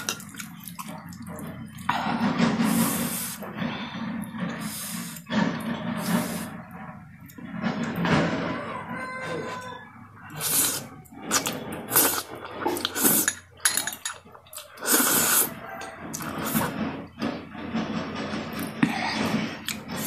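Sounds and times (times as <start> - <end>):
wet chewing mouth sounds: 10.3 - 13.3
noodle slurping: 10.3 - 13.4, 14.6 - 16.8.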